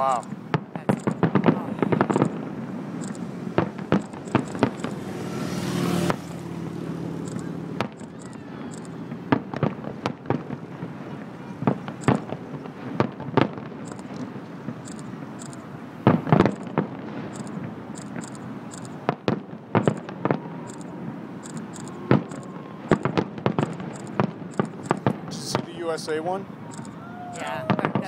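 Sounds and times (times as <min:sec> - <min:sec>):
fireworks booming and banging: 0:00.0 - 0:06.6, 0:07.2 - 0:26.9, 0:27.6 - 0:28.0.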